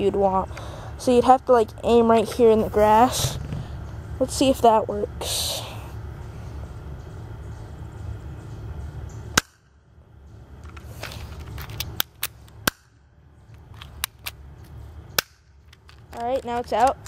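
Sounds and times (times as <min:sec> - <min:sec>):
pistol mechanism clicks: 0:10.6 - 0:12.9, 0:13.5 - 0:17.0
airsoft pistol snapping: 0:15.1 - 0:16.0.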